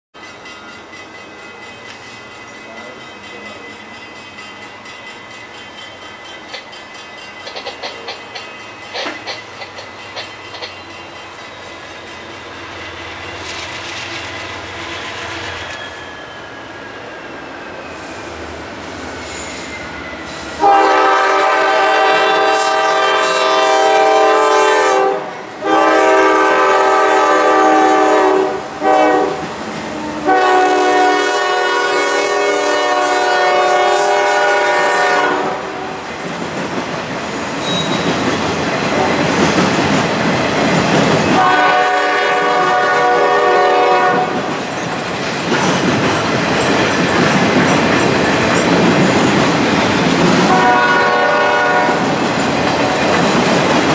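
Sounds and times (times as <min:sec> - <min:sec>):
train cars rumbling and clacking: 0:00.2 - 0:53.9
locomotive air horn blasts: 0:20.6 - 0:29.4, 0:30.0 - 0:35.8, 0:41.4 - 0:44.4, 0:50.5 - 0:52.0.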